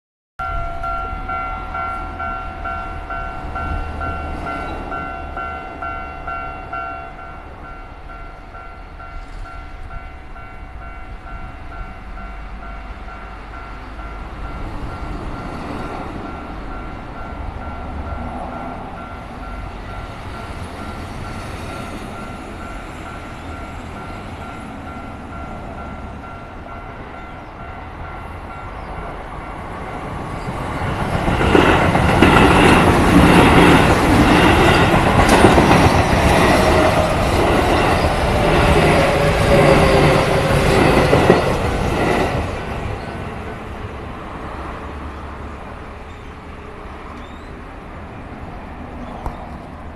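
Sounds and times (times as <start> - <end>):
level-crossing warning bell: 0.4 - 43.5
wheels clattering on rails: 29.5 - 43.4.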